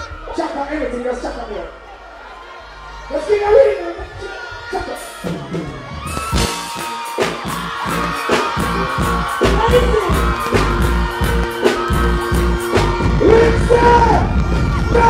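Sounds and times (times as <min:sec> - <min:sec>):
live reggae band music: 0:05.0 - 0:15.0.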